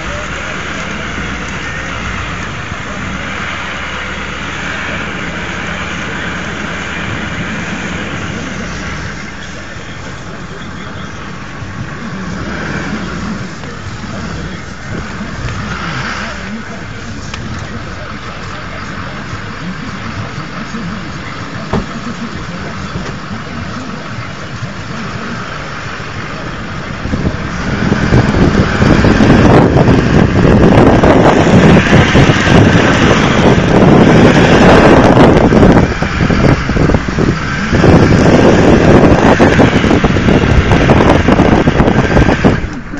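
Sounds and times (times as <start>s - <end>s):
vehicle driving across grass: 21.5s - 42.9s.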